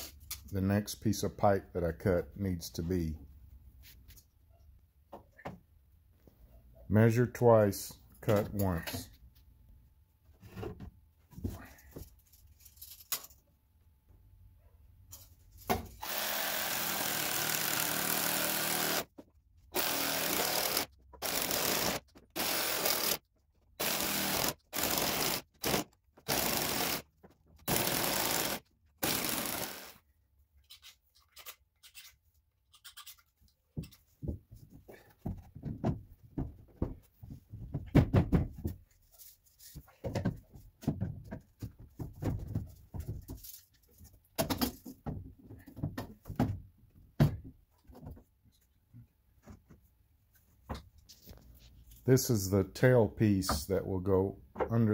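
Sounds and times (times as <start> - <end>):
knocks of plastic pipe handled: 34.2 - 38.8.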